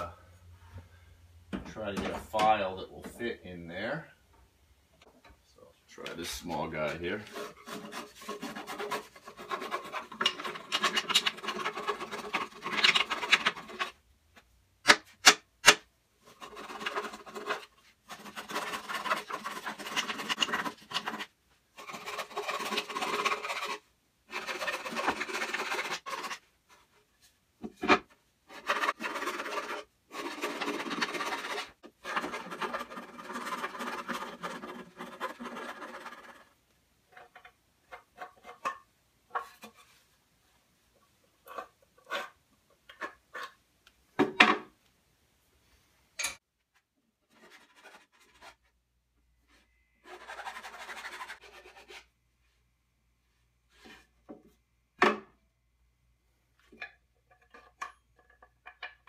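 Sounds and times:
hand file rasping on wood: 0:07.2 - 0:13.9, 0:16.3 - 0:26.4, 0:28.5 - 0:36.5.

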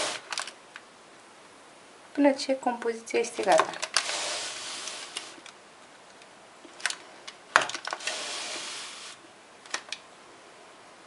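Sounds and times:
baking paper rustling: 0:00.0 - 0:00.5, 0:03.3 - 0:05.4, 0:07.8 - 0:09.2.

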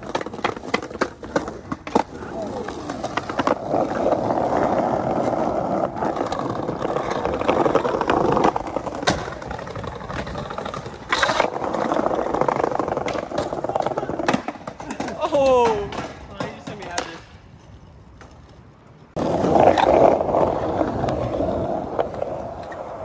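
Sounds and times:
skateboard clacks: 0:00.0 - 0:23.0
skateboard wheels rolling on tiles: 0:00.0 - 0:23.0
skateboard striking concrete ledge: 0:06.0 - 0:17.3.

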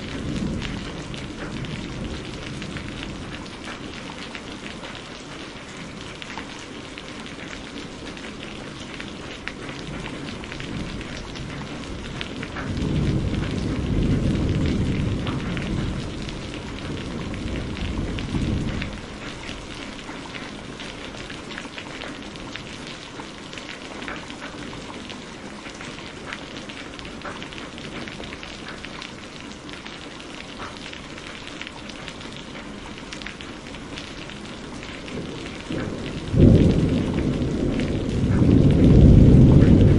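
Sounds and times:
low thunder rumbling: 0:00.0 - 0:05.0, 0:09.3 - 0:22.8, 0:32.0 - 0:39.9
rain pattering on surfaces: 0:00.0 - 0:39.9.

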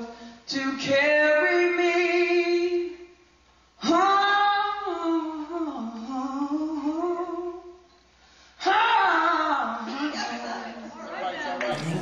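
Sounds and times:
young man singing a long note: 0:11.7 - 0:12.0.

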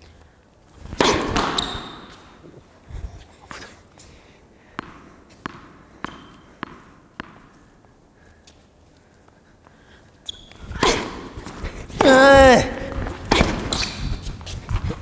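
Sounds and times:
racket striking ball: 0:00.9 - 0:02.4, 0:04.8 - 0:07.6, 0:10.6 - 0:14.2
tennis ball bouncing on court: 0:00.9 - 0:02.4, 0:04.8 - 0:07.7, 0:10.5 - 0:14.0
shoe squeak: 0:00.9 - 0:02.6, 0:06.0 - 0:06.6, 0:10.2 - 0:11.7, 0:13.2 - 0:15.0.

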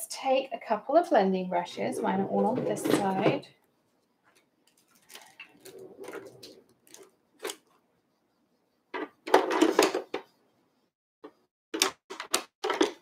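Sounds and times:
tools rustling on a desk: 0:02.0 - 0:07.8.

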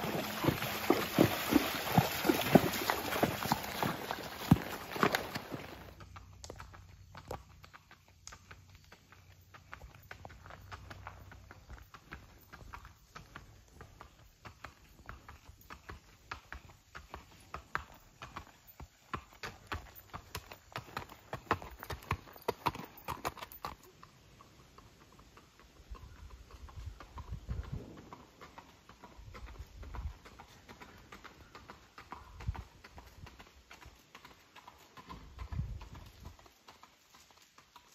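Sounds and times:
hoof footfalls on leaves: 0:00.0 - 0:06.0
hooves clip-clopping on pavement: 0:00.0 - 0:37.9.

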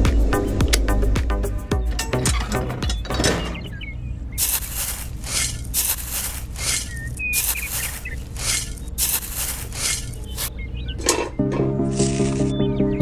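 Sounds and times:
toy shovel scraping granules: 0:04.4 - 0:10.5.

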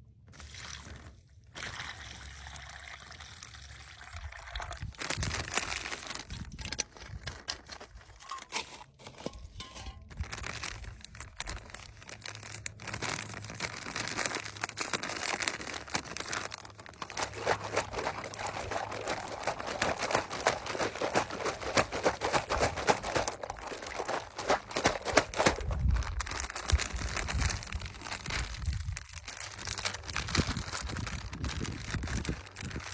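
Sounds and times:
plastic bag crinkling: 0:03.9 - 0:32.9.

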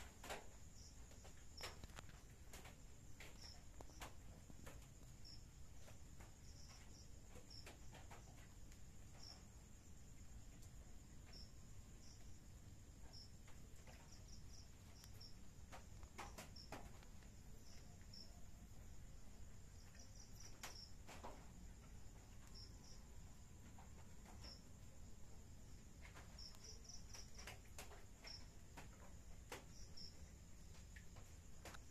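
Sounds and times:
cricket chirps: 0:00.0 - 0:31.9
steady high-pitched hiss: 0:00.0 - 0:31.9.

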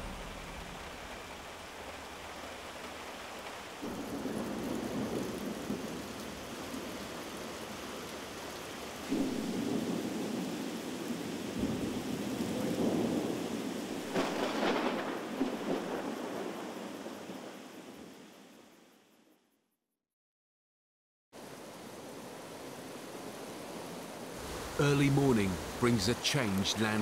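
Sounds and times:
rolling thunder: 0:00.0 - 0:01.9, 0:03.8 - 0:07.1, 0:09.0 - 0:17.2
heavy rain: 0:00.0 - 0:18.7, 0:21.4 - 0:27.0.

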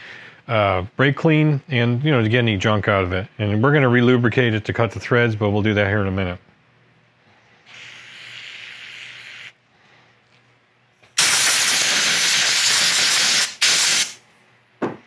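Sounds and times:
compressed air blasts: 0:07.6 - 0:09.6, 0:11.1 - 0:14.2
aerosol spray hissing: 0:07.7 - 0:09.6, 0:11.2 - 0:14.2.

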